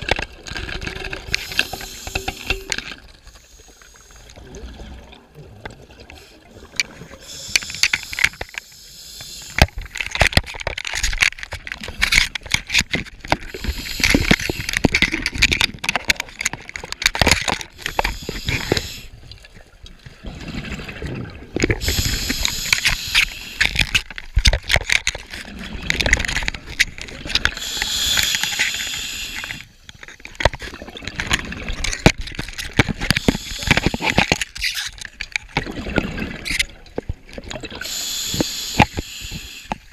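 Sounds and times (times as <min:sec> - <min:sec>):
underwater bubbling and gurgling: 0:00.0 - 0:39.9
regulator inhale hiss: 0:01.3 - 0:02.7, 0:03.3 - 0:04.3, 0:07.2 - 0:10.0, 0:13.5 - 0:14.9, 0:17.8 - 0:19.1, 0:21.8 - 0:23.8, 0:27.5 - 0:29.8, 0:33.1 - 0:34.3, 0:37.8 - 0:39.9.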